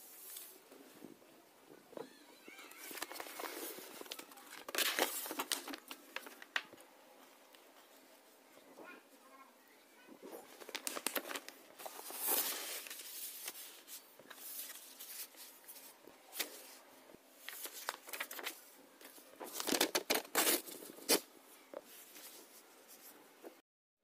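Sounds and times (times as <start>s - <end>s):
paper rustling: 2.4s - 8.0s, 10.2s - 16.8s, 17.4s - 23.2s.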